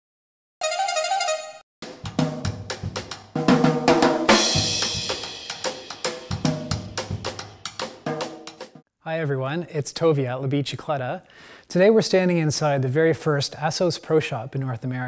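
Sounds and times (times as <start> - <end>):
drum kit beat: 1.8 - 8.8
cymbal crash: 4.3 - 7.9.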